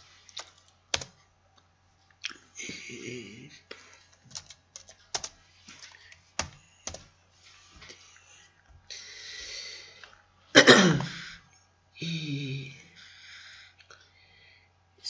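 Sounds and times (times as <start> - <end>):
keyboard keystrokes: 0.4 - 1.2, 4.3 - 5.4, 6.4 - 7.1
person clearing throat: 10.6 - 11.2
person coughing: 10.6 - 11.2.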